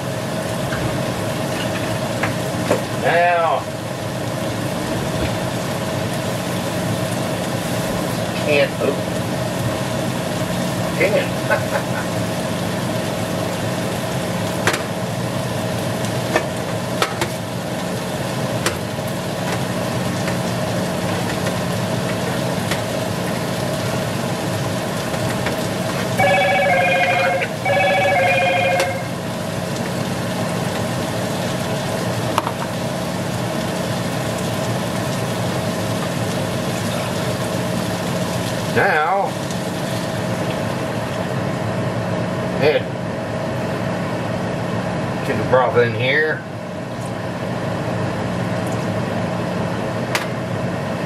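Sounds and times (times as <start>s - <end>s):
meat sizzling in a frying pan: 0.0s - 26.2s, 29.1s - 41.6s
electronic telephone ring: 26.2s - 29.2s.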